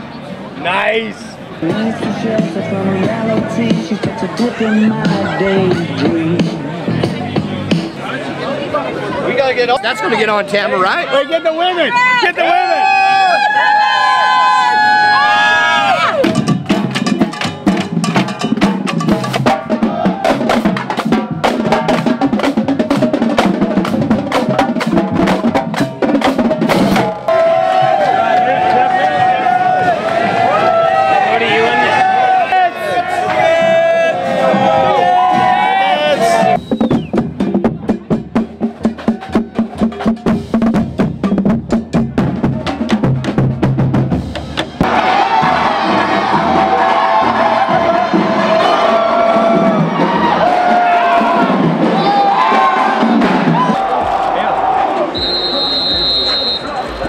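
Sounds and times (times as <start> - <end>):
marching bass drums: 1.6 - 8.1, 15.9 - 30.7, 33.3 - 57.0.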